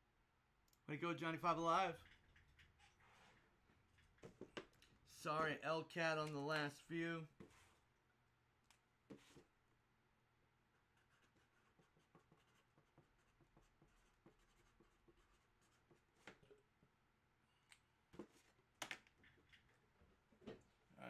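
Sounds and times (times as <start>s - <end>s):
faint scratching: 1.8s - 4.2s.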